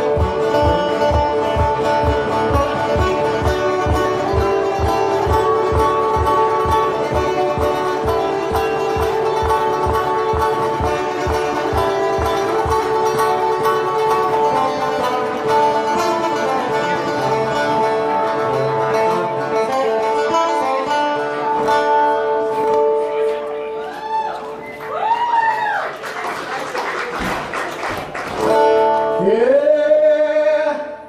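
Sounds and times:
slide resonator guitar: 0.0s - 24.6s, 28.4s - 30.1s.

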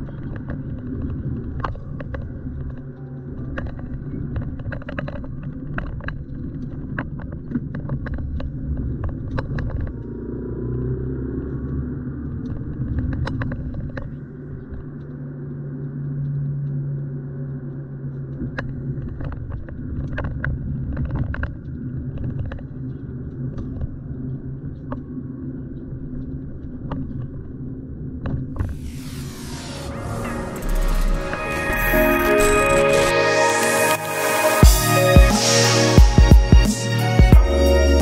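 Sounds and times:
car engine and road rumble: 8.4s - 14.1s.

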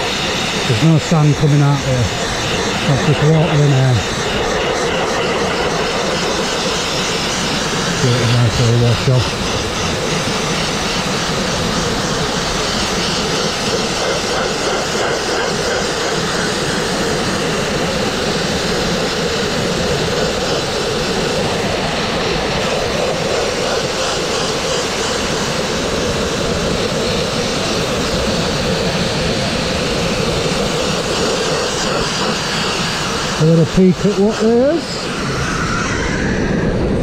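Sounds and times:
air and water jet hissing: 0.0s - 36.6s.

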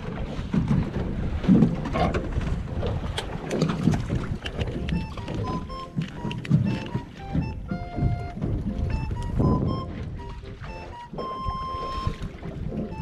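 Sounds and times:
water lapping on boat: 0.0s - 13.0s
wind: 0.0s - 13.0s
background music with held notes: 4.6s - 13.0s
low knocks: 5.5s - 11.6s.

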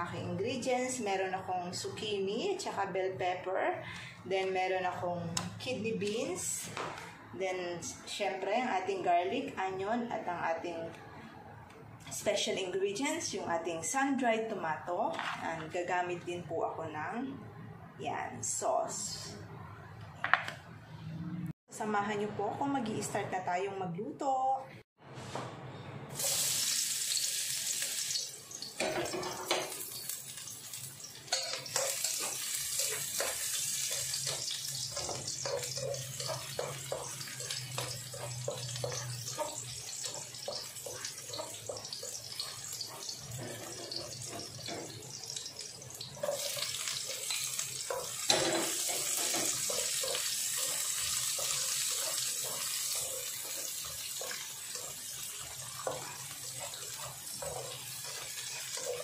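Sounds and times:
garlic sizzling in hot oil: 26.1s - 59.0s
spatula scraping and tapping: 31.2s - 59.0s.

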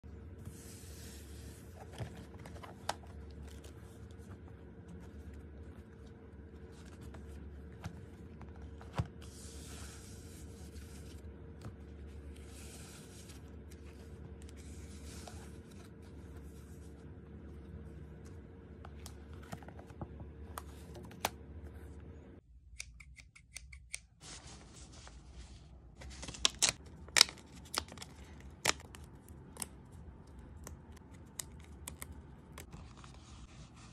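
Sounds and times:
low hum: 0.0s - 22.6s
paper pages rustling: 0.4s - 21.9s, 24.2s - 29.8s, 30.6s - 33.9s.

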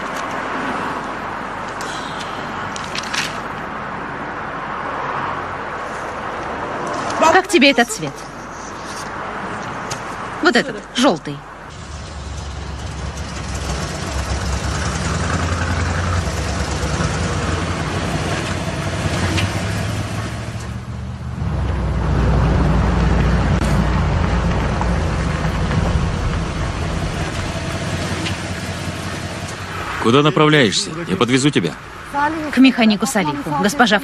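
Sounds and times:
truck engine running: 11.7s - 31.5s.

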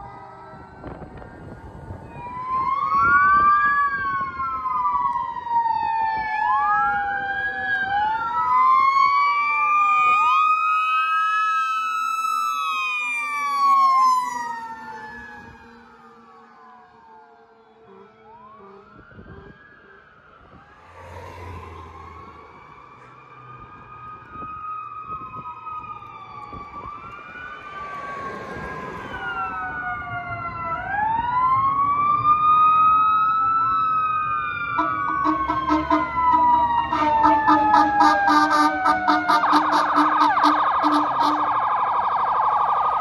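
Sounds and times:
fast pulsing siren: 0.0s - 43.0s
fire truck sirens wailing: 0.0s - 43.0s.

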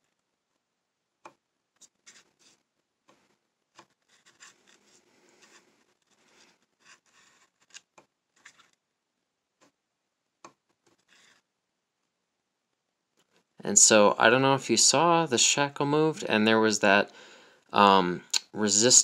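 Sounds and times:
scratchy metal rubbing: 4.1s - 7.8s.

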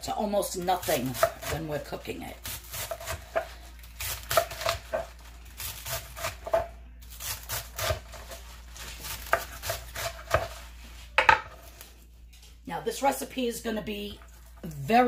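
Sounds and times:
knife chopping on wooden board: 0.8s - 1.6s, 2.5s - 3.5s, 4.1s - 5.1s, 5.8s - 6.7s, 9.0s - 10.6s.

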